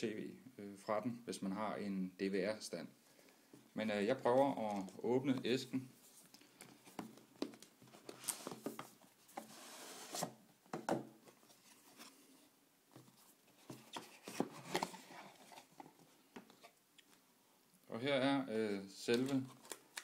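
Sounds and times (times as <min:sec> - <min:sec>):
cardboard box sliding out of sleeve: 0:09.4 - 0:10.4
cardboard taps and knocks: 0:10.7 - 0:11.1.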